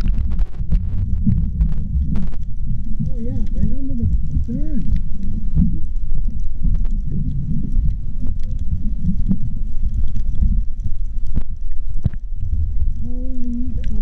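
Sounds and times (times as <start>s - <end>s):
muffled underwater rumble: 0.0s - 14.0s.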